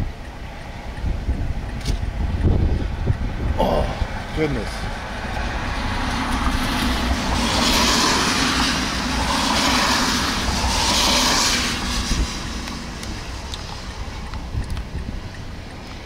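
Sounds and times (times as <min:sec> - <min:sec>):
car road and engine rumble: 0:00.0 - 0:16.0
swells of hiss: 0:06.0 - 0:14.5.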